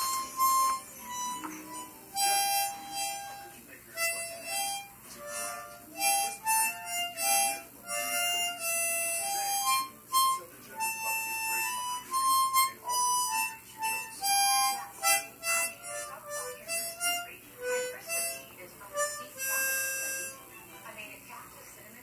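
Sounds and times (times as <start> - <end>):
harmonica melody: 0.0 - 21.0.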